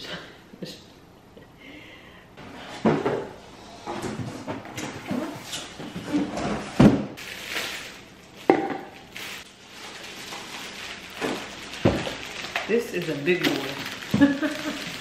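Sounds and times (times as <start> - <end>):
cardboard and plastic rustling: 3.9 - 15.0.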